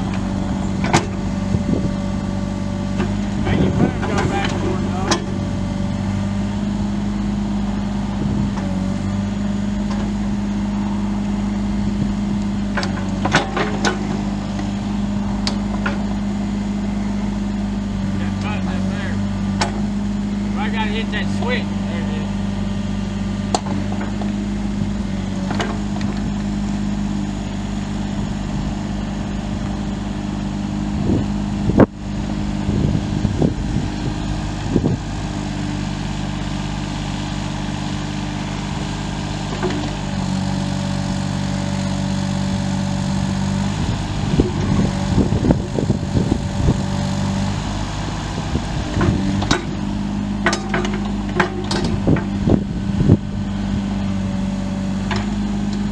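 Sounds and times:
excavator diesel engine running: 0.0 - 55.9
metal clanks: 50.4 - 52.3.

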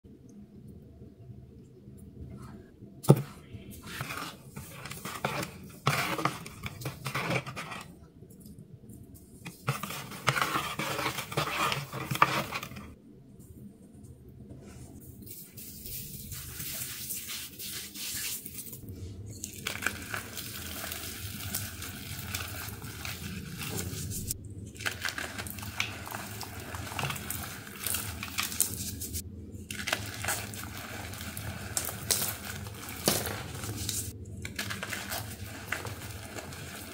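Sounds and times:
powdery block crunching: 29.7 - 36.9.

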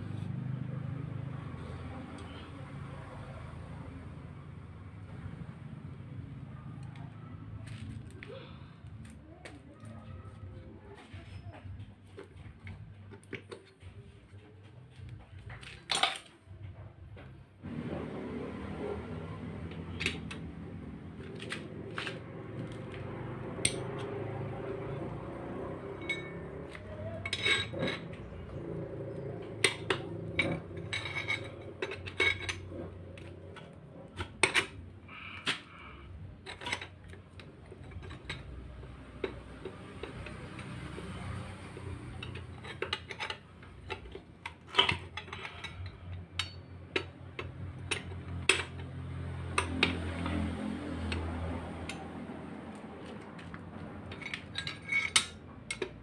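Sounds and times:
metallic clinks: 23.6 - 33.2.

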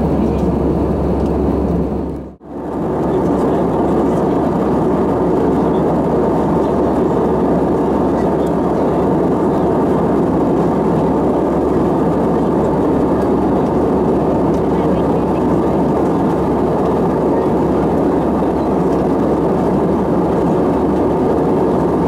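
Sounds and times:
airliner cabin airflow and engine noise: 0.0 - 22.0.

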